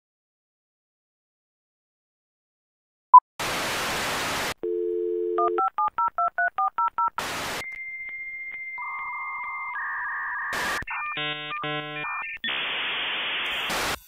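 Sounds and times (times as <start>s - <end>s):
burst of static: 3.4s - 4.6s, 7.2s - 7.6s, 12.5s - 14.0s
telephone dial tone: 4.6s - 6.8s
touch-tone keypad beeps: 4.7s - 7.0s.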